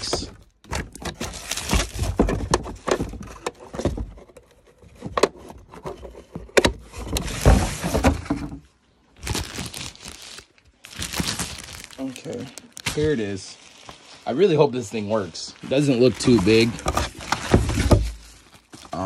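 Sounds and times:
packaging rustling: 0.0s - 3.4s, 9.1s - 19.0s
box knocks and thuds: 0.0s - 4.2s, 6.5s - 8.6s, 16.8s - 18.2s.

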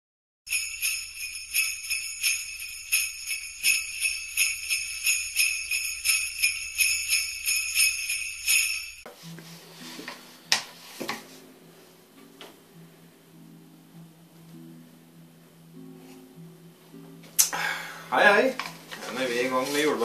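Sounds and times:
sleigh bells shaken rhythmically: 0.5s - 9.1s.

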